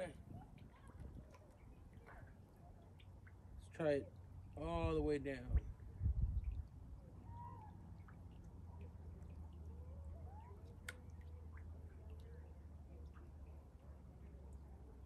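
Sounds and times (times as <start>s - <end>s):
low steady rumble: 0.0s - 15.0s
faint animal calls: 7.1s - 11.6s.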